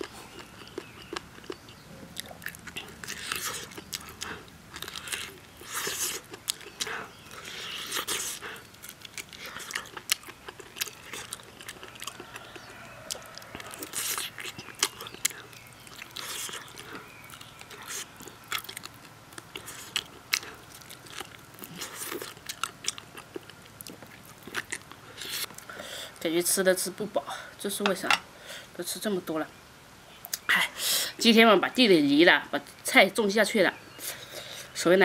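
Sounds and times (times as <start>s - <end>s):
person chewing: 0.0s - 25.8s.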